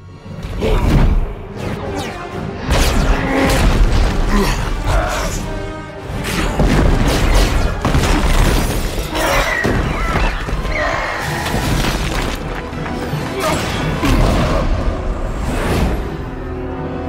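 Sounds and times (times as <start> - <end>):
orchestral music: 0.0 - 17.0
crashing masonry: 11.4 - 12.8.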